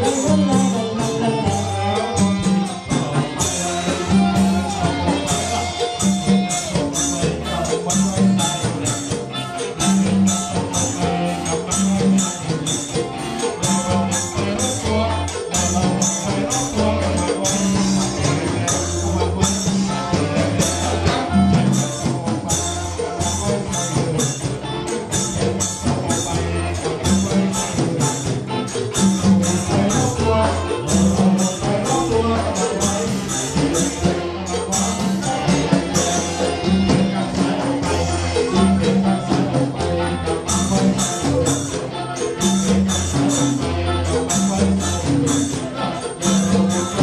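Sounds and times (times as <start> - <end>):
band playing dance music: 0.0 - 47.0.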